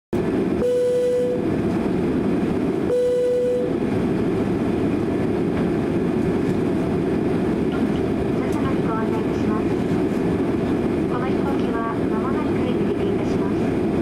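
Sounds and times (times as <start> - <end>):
jet engines roaring in cabin: 0.2 - 14.0
runway rumble: 0.2 - 14.0
short steady tones: 0.6 - 1.4, 2.9 - 3.8.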